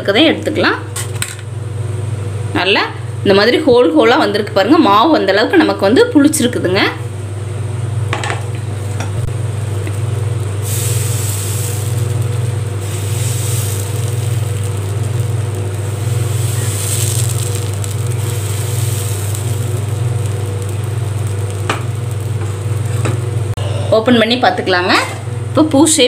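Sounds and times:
low hum: 0:09.1 - 0:23.8
batter sizzling in hot pan: 0:09.2 - 0:23.6.

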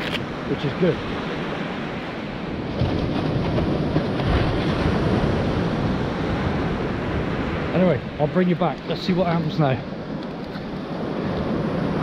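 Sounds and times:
sea waves washing on shore: 0:00.0 - 0:12.0
wind rumbling on microphone: 0:00.0 - 0:12.0.

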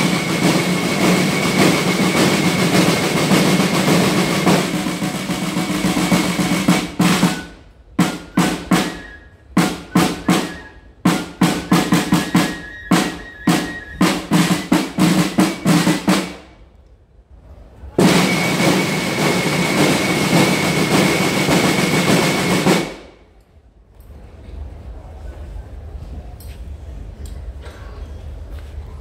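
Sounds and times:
marching snare drums: 0:00.0 - 0:16.6, 0:18.0 - 0:23.2
snare drum roll: 0:00.0 - 0:16.6, 0:18.0 - 0:23.2.

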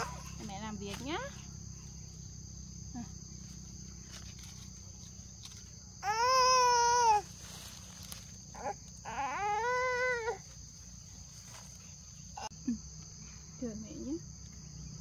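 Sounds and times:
high insect drone: 0:00.0 - 0:15.0
baby crying: 0:06.0 - 0:07.3, 0:08.6 - 0:10.4.

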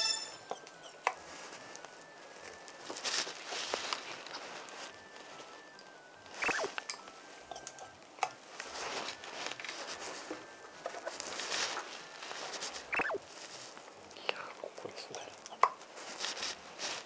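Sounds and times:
falling squeak: 0:00.0 - 0:01.0, 0:02.4 - 0:07.9, 0:10.9 - 0:13.4.

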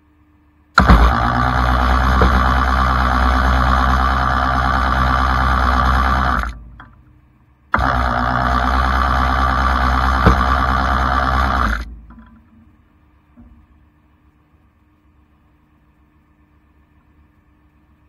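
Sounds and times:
hydraulic winch droning: 0:00.8 - 0:07.1, 0:07.7 - 0:12.5.

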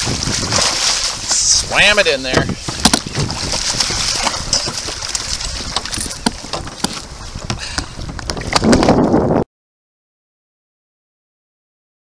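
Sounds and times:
water sloshing and splashing: 0:00.0 - 0:09.3
wind on microphone: 0:00.0 - 0:09.5.

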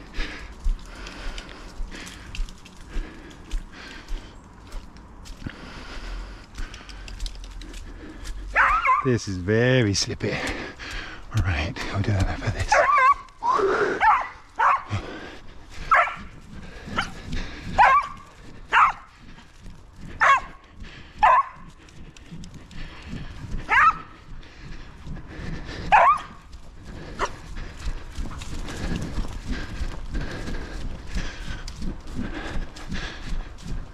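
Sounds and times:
dog barking: 0:08.5 - 0:09.1, 0:12.7 - 0:13.3, 0:14.0 - 0:15.0, 0:15.9 - 0:16.3, 0:17.8 - 0:19.1, 0:20.2 - 0:20.6, 0:21.2 - 0:21.7, 0:23.7 - 0:24.1, 0:25.9 - 0:26.4.

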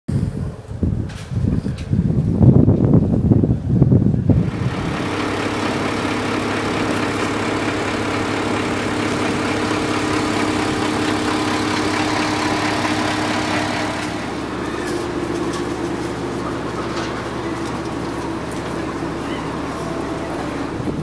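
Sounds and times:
diesel truck engine idling: 0:04.2 - 0:21.0.

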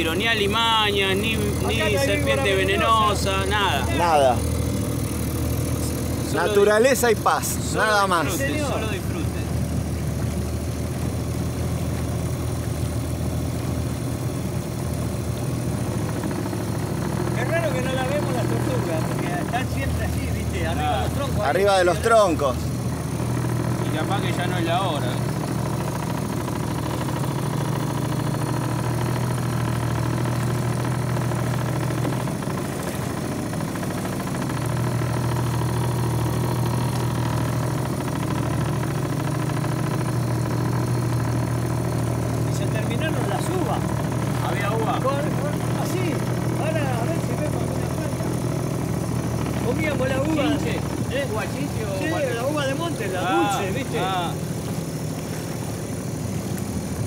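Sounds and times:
outboard motor droning: 0:00.0 - 0:57.0.

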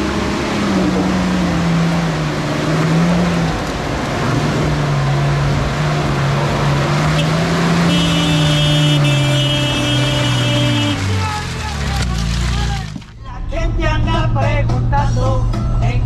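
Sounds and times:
truck engine pulling under load: 0:00.0 - 0:13.2.

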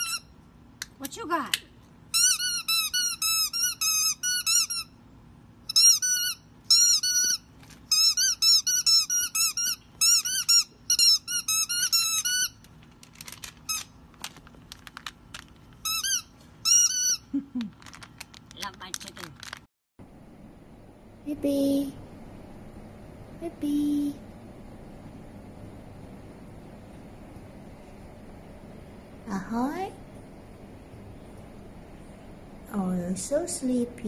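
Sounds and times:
squeaky toy squeaking: 0:02.1 - 0:04.9, 0:05.7 - 0:12.6, 0:15.8 - 0:17.3.

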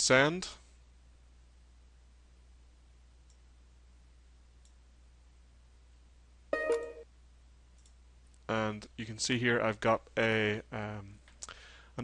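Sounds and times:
faint low hum: 0:00.0 - 0:12.0
electronic notification chime: 0:06.6 - 0:07.0.

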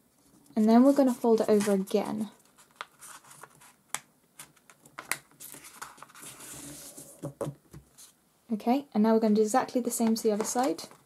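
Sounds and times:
paper crinkling and rustling: 0:00.2 - 0:03.8, 0:04.4 - 0:07.3.

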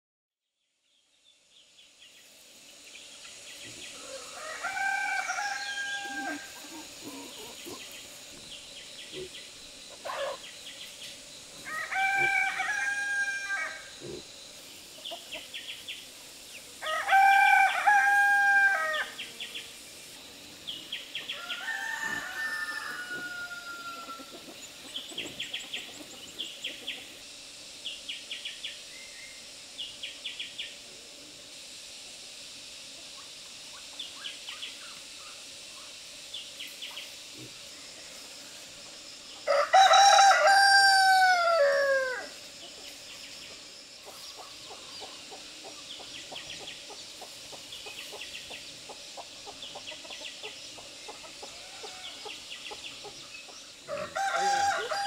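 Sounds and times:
rooster crowing: 0:04.0 - 0:06.7, 0:11.6 - 0:14.0, 0:16.8 - 0:19.2, 0:21.3 - 0:24.4, 0:39.4 - 0:42.4, 0:51.4 - 0:52.4, 0:53.9 - 0:55.0.

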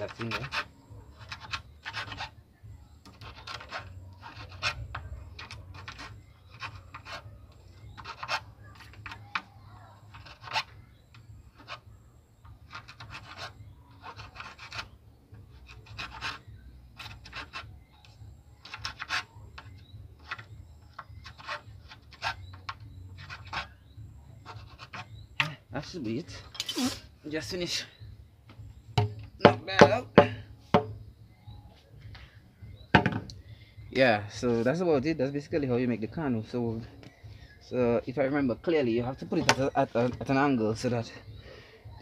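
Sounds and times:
hacksaw blade rasping in bamboo: 0:00.0 - 0:02.4, 0:03.0 - 0:11.9, 0:12.6 - 0:23.8, 0:24.4 - 0:25.6.

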